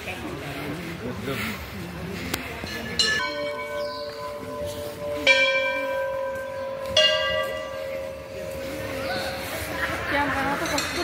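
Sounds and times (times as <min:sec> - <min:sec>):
temple bell ringing: 0:02.6 - 0:11.0.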